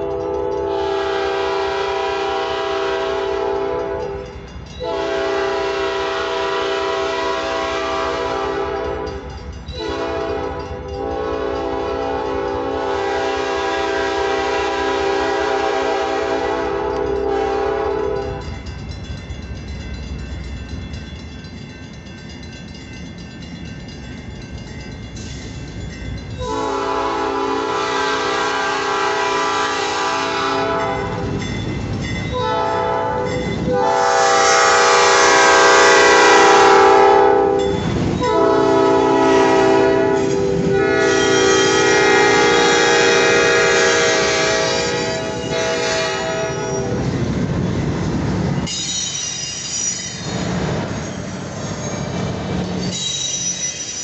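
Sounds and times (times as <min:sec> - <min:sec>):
locomotive air horn blasts: 0:00.0 - 0:18.5, 0:26.4 - 0:31.4, 0:32.3 - 0:47.0.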